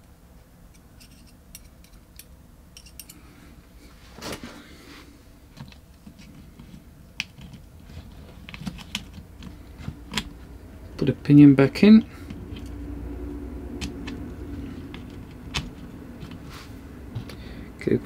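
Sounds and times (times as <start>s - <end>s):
small parts clicking and rattling: 0.7s - 3.2s, 5.6s - 10.4s
scraping rustle: 3.8s - 5.1s, 14.5s - 17.4s.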